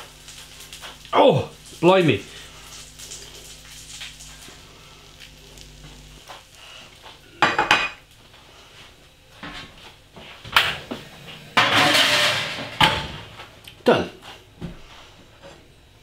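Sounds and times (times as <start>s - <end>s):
scraping clatter: 11.5s - 13.2s
metal tray and utensils clattering: 11.6s - 13.3s.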